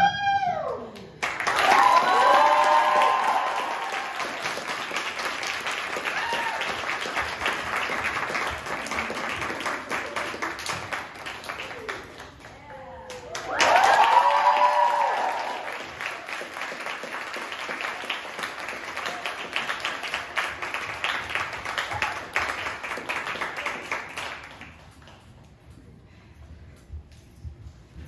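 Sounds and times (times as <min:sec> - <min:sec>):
loud whoops: 0:00.0 - 0:04.4, 0:06.0 - 0:06.9, 0:13.2 - 0:15.8
audience applauding: 0:01.2 - 0:25.3.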